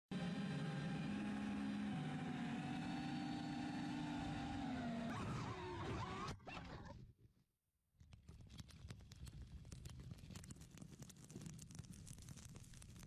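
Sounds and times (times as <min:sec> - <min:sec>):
drone propellers humming: 0:00.1 - 0:05.1.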